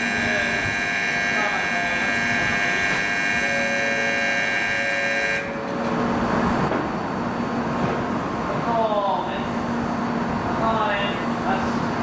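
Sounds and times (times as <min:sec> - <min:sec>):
platform departure bell ringing: 0:00.0 - 0:06.1
train humming and rumbling: 0:00.0 - 0:12.0.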